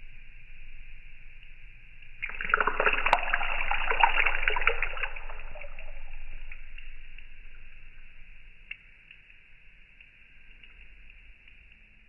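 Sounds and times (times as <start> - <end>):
water crackling and splattering: 2.2 - 9.3.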